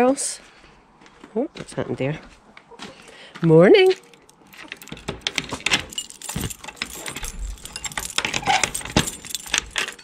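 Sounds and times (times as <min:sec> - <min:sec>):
rattling and clinking: 0:03.9 - 0:10.0.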